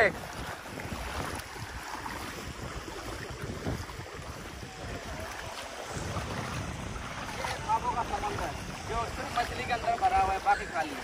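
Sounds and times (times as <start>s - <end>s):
water sloshing as people wade: 0.0s - 11.0s
wind buffeting microphone: 0.0s - 11.0s.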